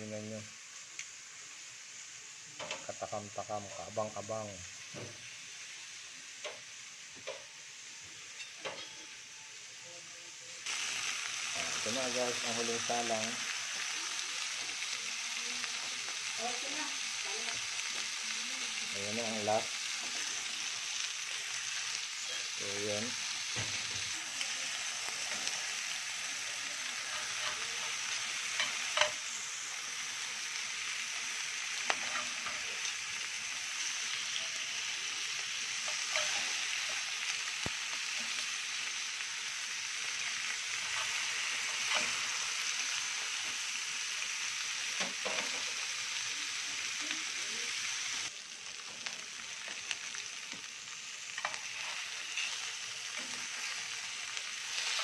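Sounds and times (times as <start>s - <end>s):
steaks sizzling in a skillet: 0.0s - 55.0s
metal spatula and tongs clinking: 8.3s - 9.1s, 27.0s - 29.2s, 31.9s - 32.9s, 35.8s - 37.0s, 51.3s - 53.6s.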